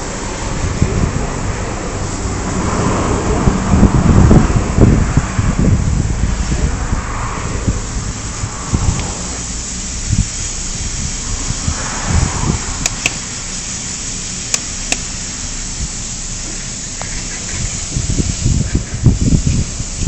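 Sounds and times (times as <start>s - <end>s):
handling rumble of camera: 0.0s - 20.0s
steady hiss: 0.0s - 20.0s
sharp clicks: 12.8s - 13.3s, 14.5s - 15.1s.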